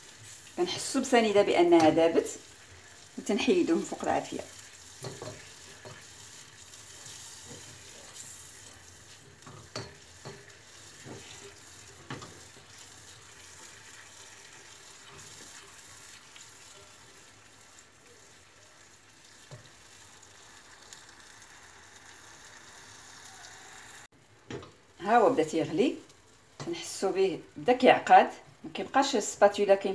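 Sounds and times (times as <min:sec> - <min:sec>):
spatula stirring saucepan: 0:00.0 - 0:20.0
faint hiss of heating liquid: 0:00.0 - 0:29.9.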